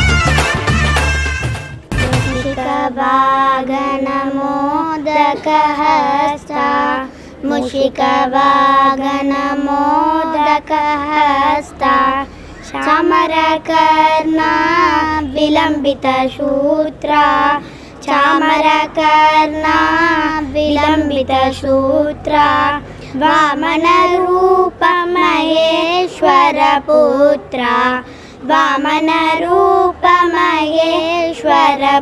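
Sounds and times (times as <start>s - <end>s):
girls singing devotional song: 2.4s - 32.0s.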